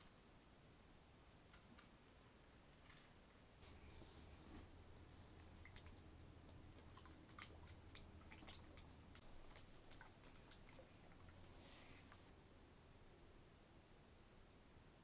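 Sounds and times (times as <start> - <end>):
low hum: 3.6 - 15.0
faint clicks and ticks: 4.6 - 12.3.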